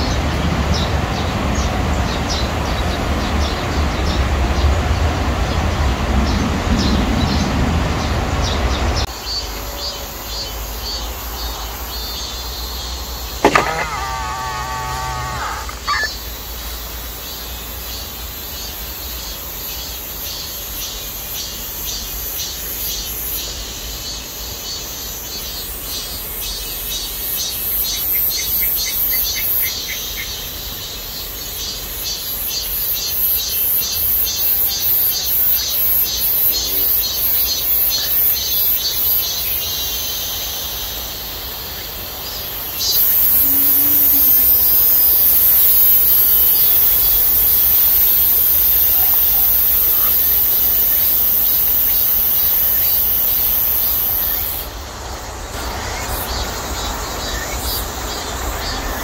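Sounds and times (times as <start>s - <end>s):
cicadas chorus: 0.0s - 59.0s
high steady buzz: 13.3s - 16.5s, 42.6s - 54.6s.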